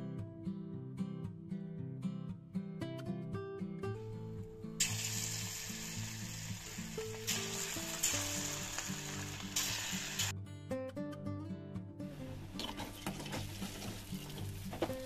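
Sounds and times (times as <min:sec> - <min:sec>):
guitar background music: 0:00.0 - 0:15.0
hot oil sizzling: 0:04.8 - 0:10.3, 0:12.6 - 0:15.0.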